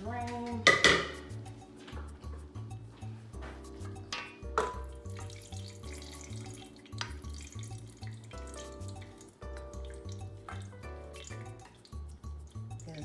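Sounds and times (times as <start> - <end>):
background music with bass line: 0.0 - 13.0
meat juice dripping: 4.7 - 13.0.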